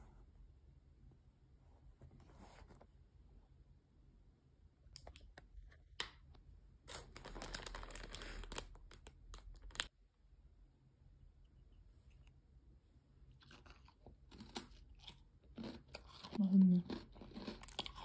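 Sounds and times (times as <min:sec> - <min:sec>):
plastic film crinkling: 0:06.9 - 0:09.9.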